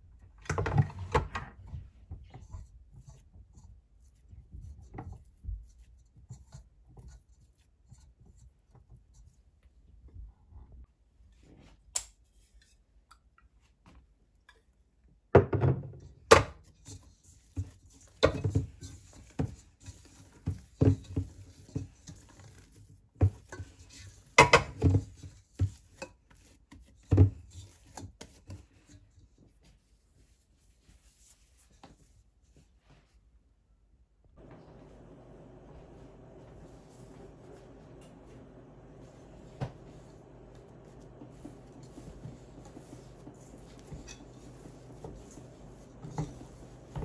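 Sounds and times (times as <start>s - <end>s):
faint handling noise: 34.4s - 47.0s.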